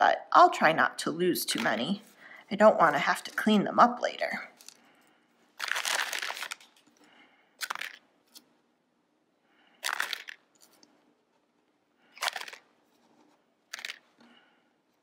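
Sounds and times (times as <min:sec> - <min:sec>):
beads dropping into plastic bag: 0:05.6 - 0:07.0, 0:07.6 - 0:08.4, 0:09.8 - 0:10.8, 0:12.1 - 0:12.7, 0:13.7 - 0:14.2.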